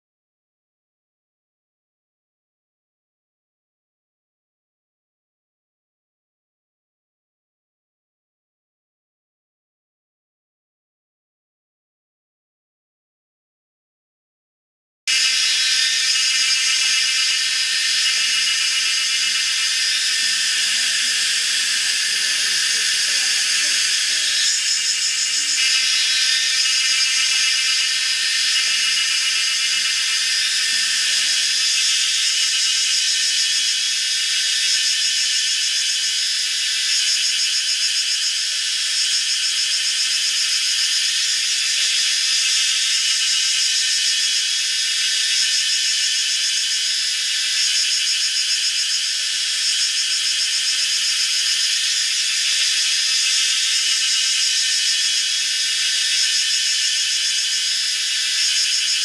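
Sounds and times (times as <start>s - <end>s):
shrill insect chorus: 15.1s - 59.0s.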